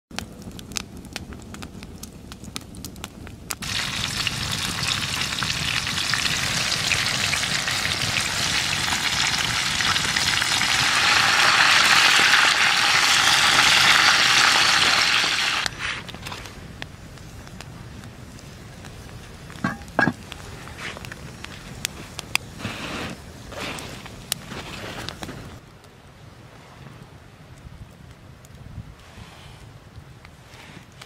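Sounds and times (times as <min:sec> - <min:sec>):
chicken sizzling in hot oil: 0:03.6 - 0:15.8.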